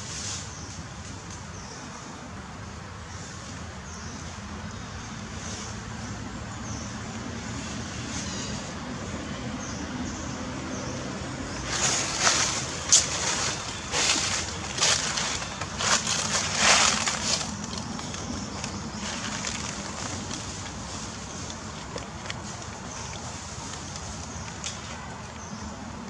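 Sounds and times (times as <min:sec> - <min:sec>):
outdoor background noise: 0:00.0 - 0:26.0
rustling and crunching: 0:11.6 - 0:25.5.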